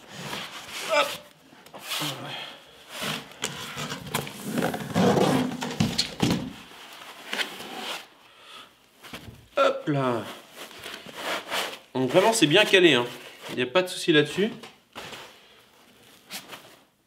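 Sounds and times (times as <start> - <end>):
cardboard scraping and knocking: 3.0 - 6.7.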